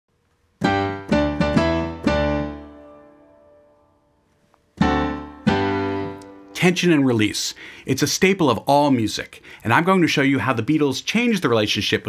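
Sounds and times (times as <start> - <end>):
piano chords: 0.6 - 7.4.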